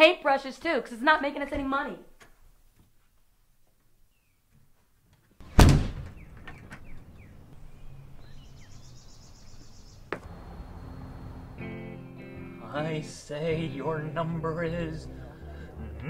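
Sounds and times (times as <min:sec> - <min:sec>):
door slamming: 0:05.4 - 0:07.0
birds chirping: 0:05.4 - 0:12.8.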